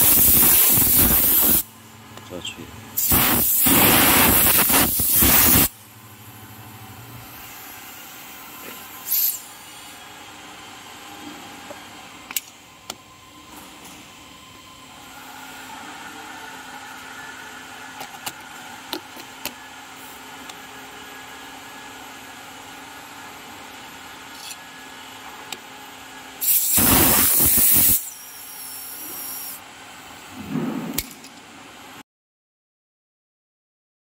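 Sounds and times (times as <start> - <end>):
compressed air blast: 0.0 - 1.6, 3.0 - 5.8, 26.4 - 29.6
machine hum: 5.7 - 8.9, 29.9 - 32.0.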